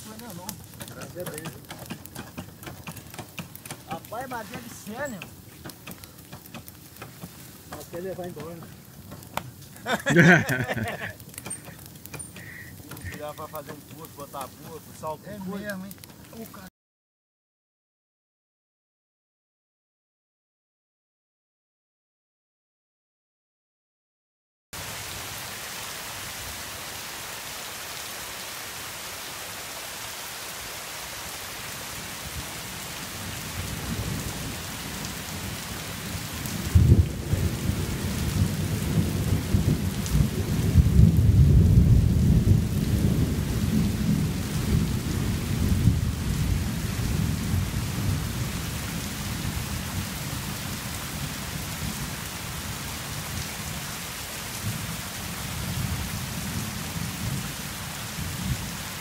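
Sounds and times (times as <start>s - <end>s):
rain falling on foliage: 0.0s - 16.7s, 24.8s - 59.0s
thunder crack and rumble: 33.2s - 52.2s.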